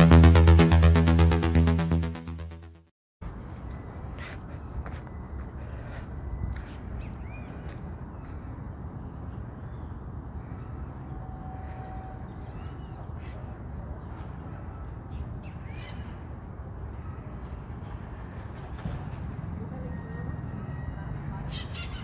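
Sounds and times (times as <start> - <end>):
birds chirping: 3.7 - 18.7, 19.4 - 22.0.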